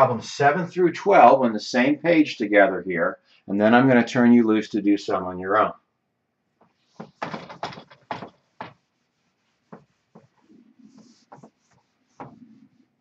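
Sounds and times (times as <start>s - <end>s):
whiteboard rubbing strokes: 6.7s - 13.0s.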